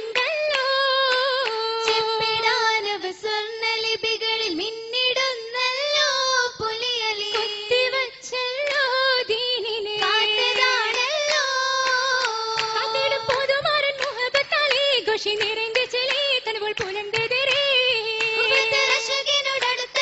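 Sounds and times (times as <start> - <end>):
hand claps: 0.0 - 2.9, 7.2 - 7.7, 8.6 - 9.1, 9.8 - 20.0
young women singing in unison: 0.0 - 20.0.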